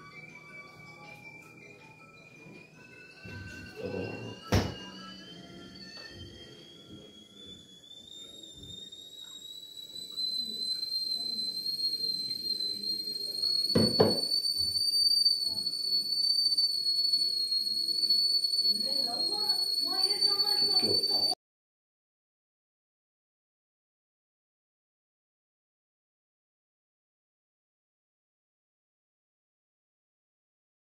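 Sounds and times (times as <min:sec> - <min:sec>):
high whistle rising in pitch: 0:00.0 - 0:21.4.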